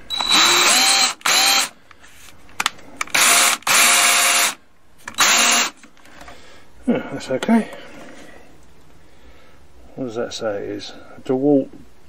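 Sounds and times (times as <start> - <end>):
cordless drill motor whining: 0.1 - 1.8, 3.1 - 5.8.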